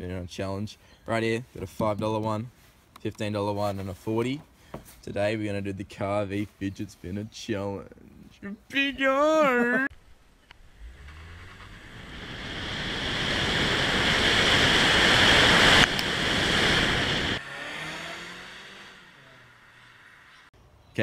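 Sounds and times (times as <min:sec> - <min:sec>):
wind and road noise: 0:10.0 - 0:20.9
car approaching along road: 0:10.5 - 0:20.6.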